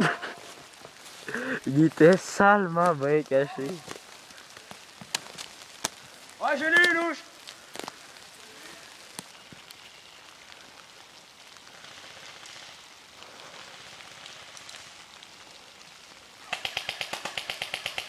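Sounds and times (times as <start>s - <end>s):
faint steady hiss: 0.0s - 18.0s
airsoft gun firing full-auto: 16.5s - 18.0s.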